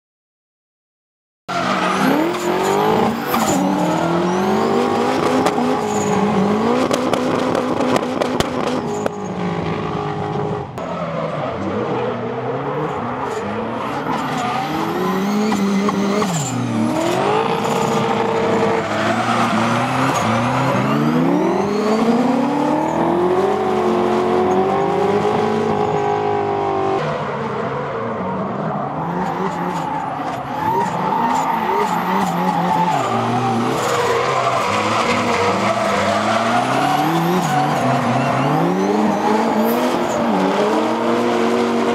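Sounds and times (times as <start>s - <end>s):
tyres screeching: 1.5s - 7.1s, 13.1s - 23.7s, 28.8s - 41.1s
car engine revving: 1.6s - 41.9s.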